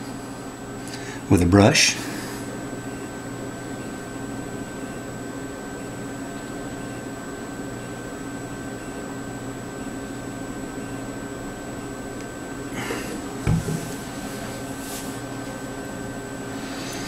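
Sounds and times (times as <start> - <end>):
steady background hum: 0.0 - 17.0
bottle thump on wooden table: 13.4 - 13.9
handling rustles: 13.4 - 15.6.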